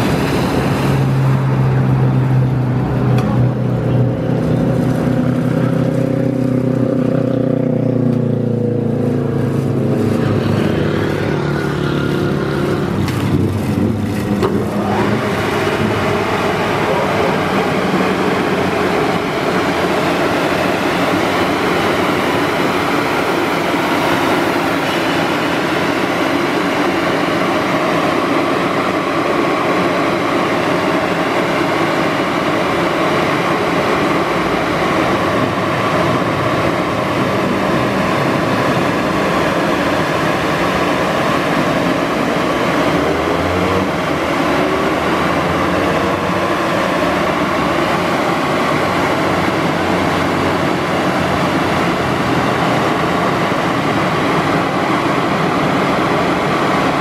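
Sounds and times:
car wash motor hum: 0.0 - 57.0
spinning brushes and water spray: 9.4 - 57.0.

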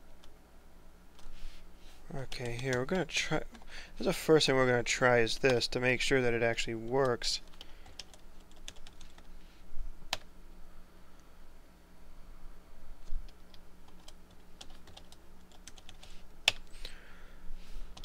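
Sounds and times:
faint steady hum: 0.0 - 18.0
keyboard typing: 7.0 - 9.3, 13.2 - 16.7.

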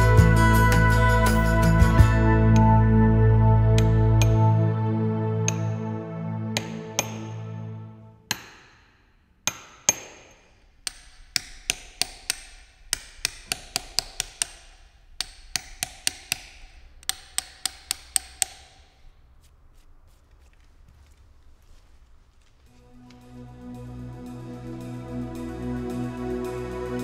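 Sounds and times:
hammer striking chisel on stone: 6.6 - 7.3, 8.3 - 19.0.

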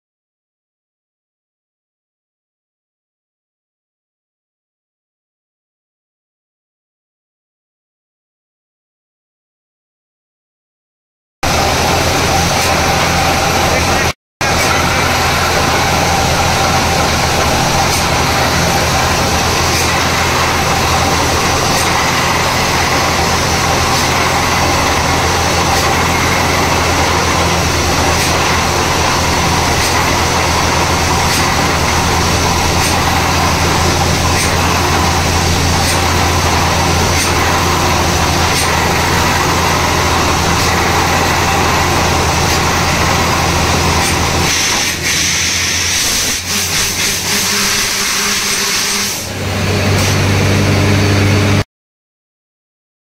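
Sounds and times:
noisy rush of drilling: 11.4 - 51.6
heavy engine drone: 11.4 - 51.7.

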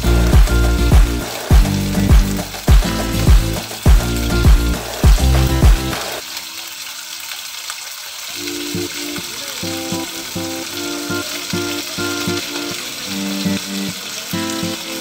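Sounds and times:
music with heavy bass beats: 0.0 - 6.2
chicken sizzling in oil: 0.0 - 15.0.

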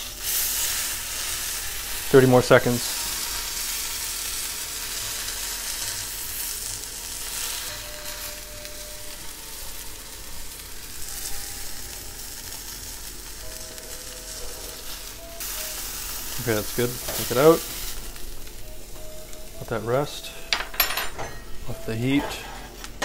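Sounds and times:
steak sizzling in a frying pan: 0.0 - 20.9.

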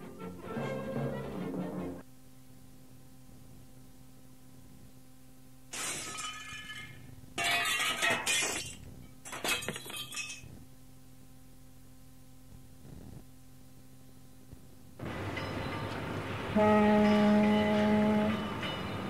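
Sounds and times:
tape hiss and hum: 0.0 - 18.8
glass shattering: 5.7 - 10.5
glass shards tinkling: 5.8 - 10.5.

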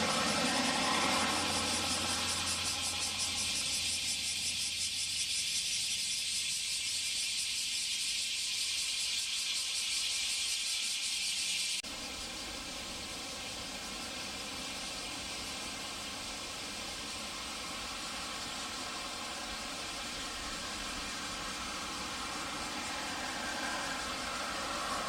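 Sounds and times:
turboprop aircraft hum: 0.0 - 6.9, 11.8 - 25.0
cicadas chorus: 0.0 - 25.0
steady hiss over low rumble: 11.8 - 25.0.

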